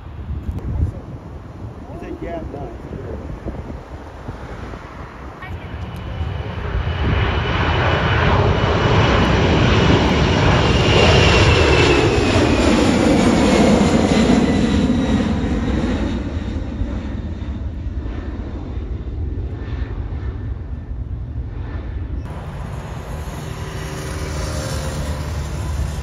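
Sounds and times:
jet engines roaring: 0:00.0 - 0:26.0
jet fan whine: 0:20.6 - 0:26.0.

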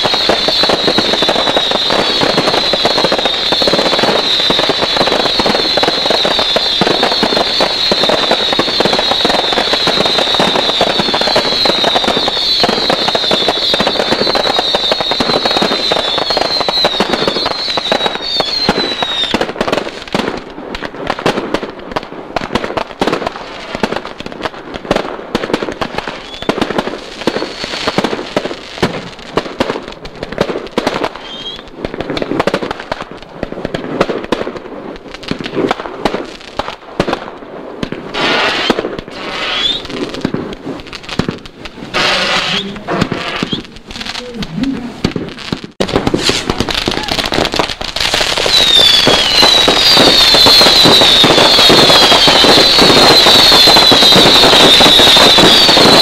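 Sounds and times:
high wavering whistle: 0:00.0 - 0:19.3, 0:31.2 - 0:31.6, 0:38.4 - 0:39.9, 0:48.4 - 0:56.0
firework reports and pops: 0:00.0 - 0:56.0.

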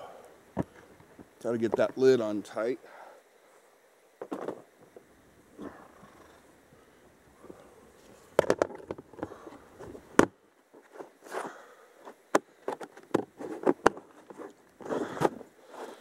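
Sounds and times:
crinkly handling noises: 0:07.4 - 0:16.0.

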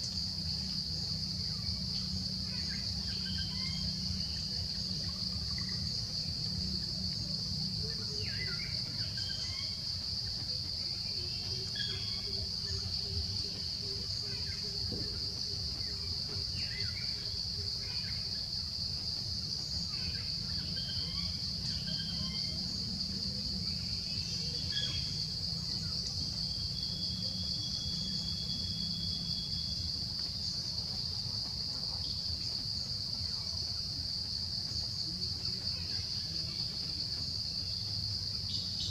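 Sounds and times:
high-pitched insect drone: 0:00.0 - 0:10.0.

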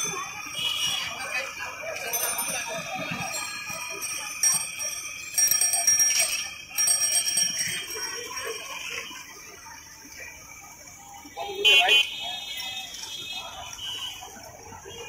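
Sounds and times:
bright metallic bell ringing: 0:00.0 - 0:09.6.

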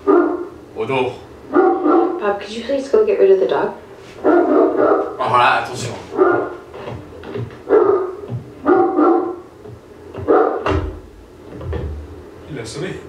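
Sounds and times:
dog barking: 0:00.0 - 0:00.6, 0:01.5 - 0:02.4, 0:04.2 - 0:05.2, 0:06.1 - 0:06.7, 0:07.6 - 0:09.5, 0:10.2 - 0:10.8.

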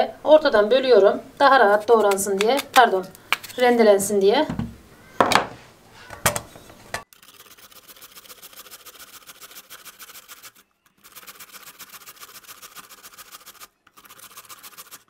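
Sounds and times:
potato grated on metal grater: 0:01.5 - 0:02.8, 0:07.1 - 0:15.0.

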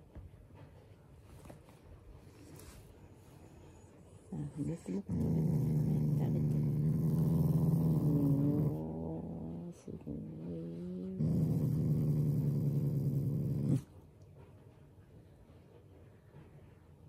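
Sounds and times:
dog growling: 0:04.3 - 0:13.9.

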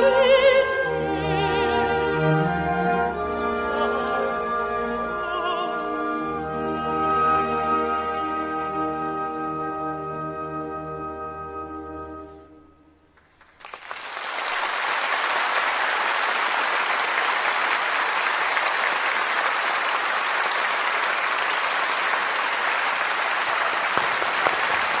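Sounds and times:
audience applauding: 0:13.2 - 0:25.0.

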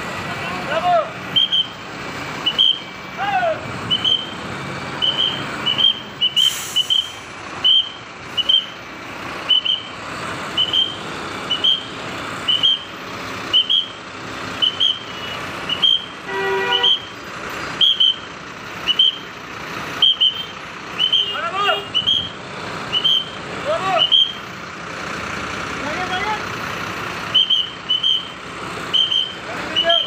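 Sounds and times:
bus engines running: 0:00.0 - 0:30.0
reversing alarm chirping: 0:01.3 - 0:01.8, 0:02.4 - 0:03.2, 0:03.8 - 0:19.4, 0:20.0 - 0:24.5, 0:27.3 - 0:30.0
horn honk: 0:14.7 - 0:17.1.

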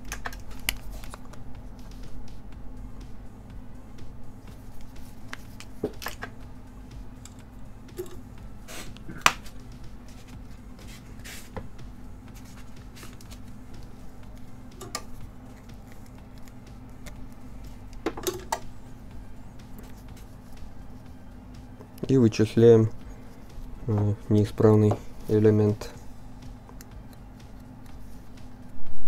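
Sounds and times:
low electrical hum: 0:00.0 - 0:29.0
tools clicking and tapping: 0:14.4 - 0:17.2, 0:17.9 - 0:18.7.

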